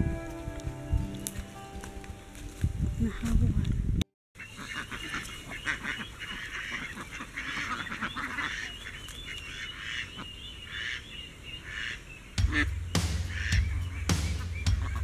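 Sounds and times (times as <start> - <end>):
ducks quacking: 4.4 - 15.0.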